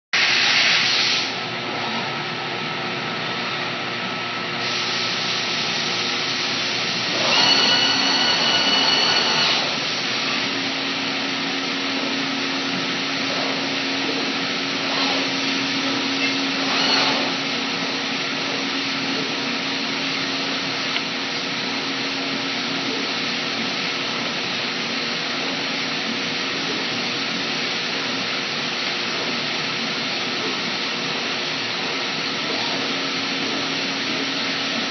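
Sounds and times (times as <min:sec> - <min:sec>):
high whine: 0:06.1 - 0:20.6
router machine rushing noise: 0:06.8 - 0:10.4, 0:13.2 - 0:18.0.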